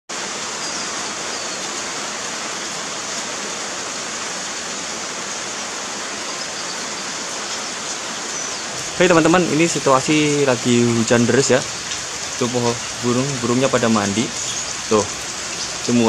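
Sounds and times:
heavy rain falling: 0:00.1 - 0:16.0
water pouring off a roof: 0:00.1 - 0:16.0.

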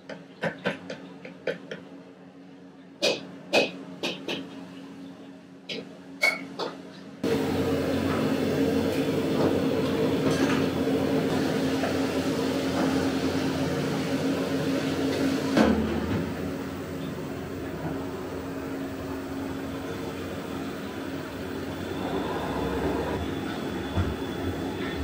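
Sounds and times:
kitchen hum and hiss: 0:00.0 - 0:25.0.

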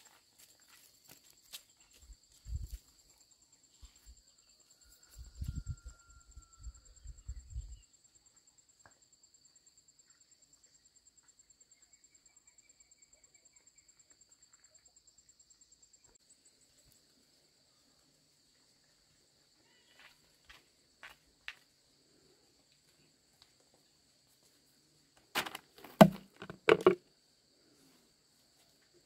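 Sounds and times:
insects calling in high tones: 0:00.0 - 0:08.4, 0:09.5 - 0:21.7
objects set down on concrete: 0:25.2 - 0:27.1.

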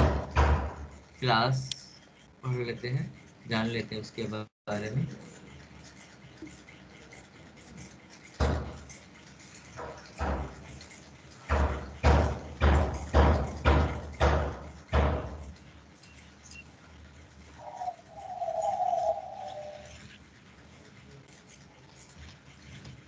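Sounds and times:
heavy knocks: 0:00.0 - 0:01.1, 0:08.4 - 0:09.0, 0:09.8 - 0:15.6.

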